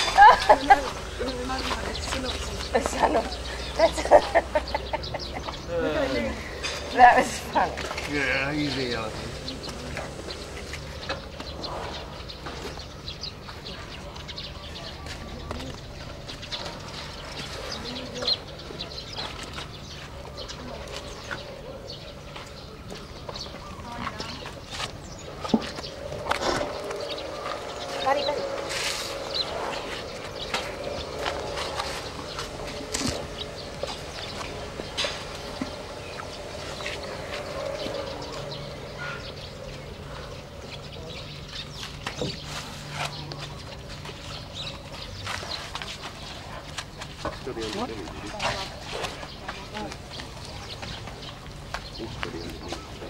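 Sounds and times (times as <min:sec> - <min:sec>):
birds chirping and calling: 0:00.0 - 0:53.0
elephants chewing corn cobs: 0:23.7 - 0:53.0.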